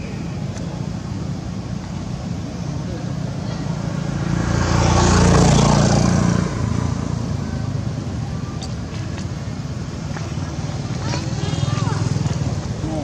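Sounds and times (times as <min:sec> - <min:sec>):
vehicle engine rumbling: 0:00.0 - 0:13.0.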